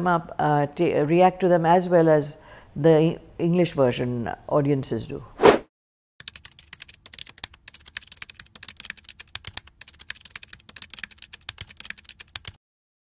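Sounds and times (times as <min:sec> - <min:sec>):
computer keyboard typing: 0:06.2 - 0:12.6.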